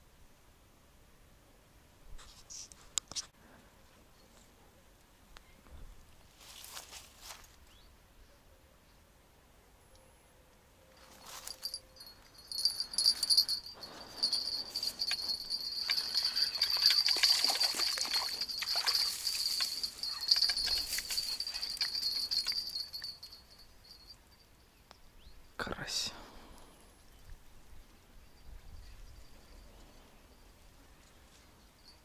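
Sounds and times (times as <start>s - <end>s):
rustling: 6.2s - 7.6s, 11.0s - 24.0s
fishing rod bell jingling: 11.0s - 24.6s, 31.7s - 32.0s.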